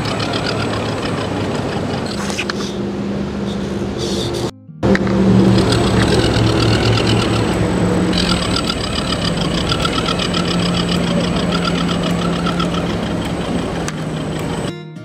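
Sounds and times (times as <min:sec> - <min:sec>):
fast even ticking: 0:00.0 - 0:02.1, 0:05.1 - 0:14.7
toy truck motor humming: 0:00.0 - 0:02.8, 0:05.4 - 0:14.7.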